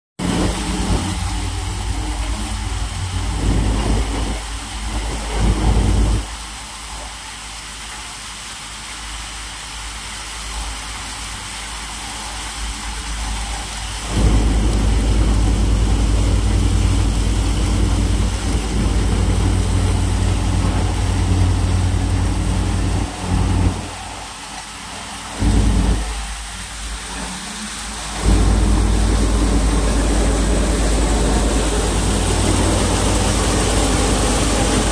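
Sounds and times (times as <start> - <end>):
thresher running: 0.2 - 6.4, 13.8 - 24.6, 25.2 - 34.9.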